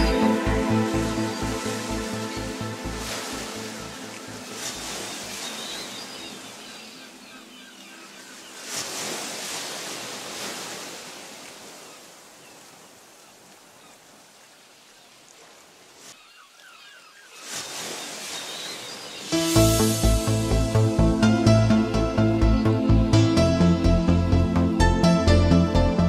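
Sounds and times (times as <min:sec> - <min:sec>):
electronic music: 0:00.0 - 0:03.0, 0:19.4 - 0:26.0
small waves washing on shore: 0:00.0 - 0:19.9.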